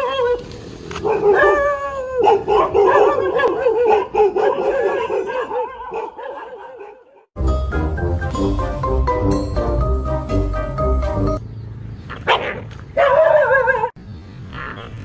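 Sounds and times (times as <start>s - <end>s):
dog howling and yelping: 0.0s - 0.5s, 1.1s - 6.9s
music: 7.4s - 11.4s.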